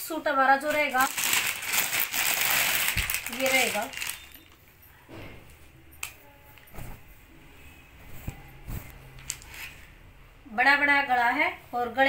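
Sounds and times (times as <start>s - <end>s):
cloth rustling: 0.7s - 4.6s, 6.6s - 10.0s.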